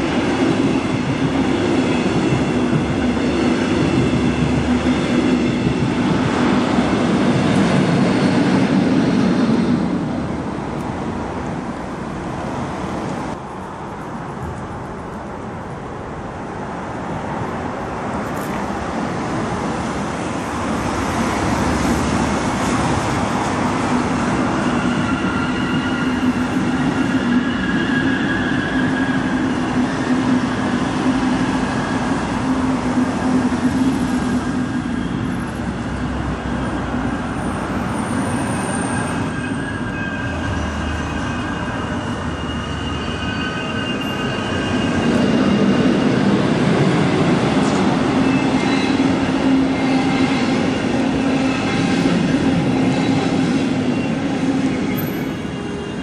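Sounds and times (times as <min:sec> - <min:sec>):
train wheels rumbling on rail: 0:00.0 - 0:56.0
thin high squealing tones: 0:24.5 - 0:31.0, 0:36.8 - 0:46.2.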